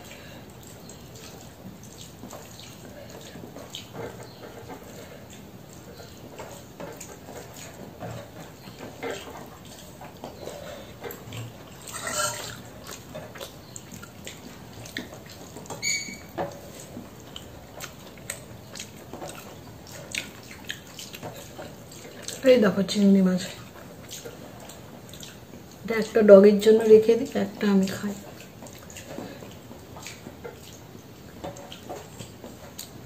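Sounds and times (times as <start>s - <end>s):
fingers squishing wet food: 0.0s - 22.5s, 23.5s - 26.0s, 27.8s - 33.0s
short high squeak: 11.9s - 12.6s, 15.8s - 16.3s.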